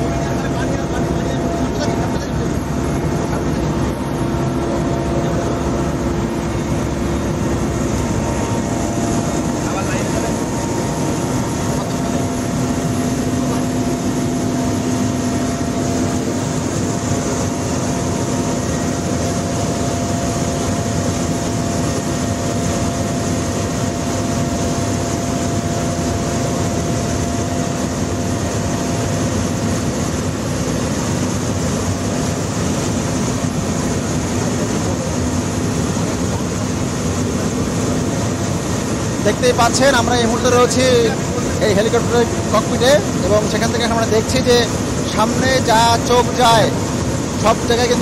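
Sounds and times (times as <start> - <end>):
helicopter engine and rotor noise: 0.0 - 48.0.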